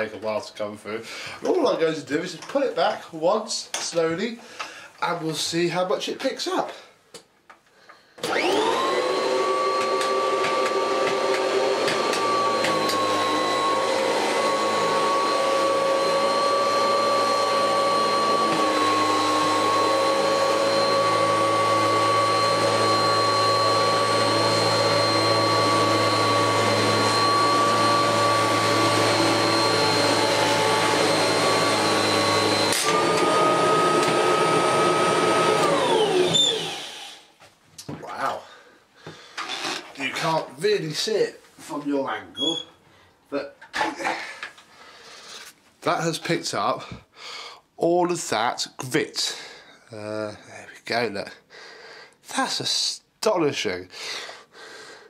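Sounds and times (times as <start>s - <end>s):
vacuum cleaner motor whine: 8.2s - 37.3s.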